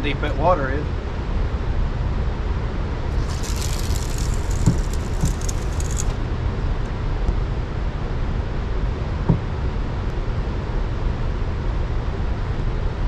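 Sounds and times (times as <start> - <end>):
light high crackle: 3.1 - 6.2.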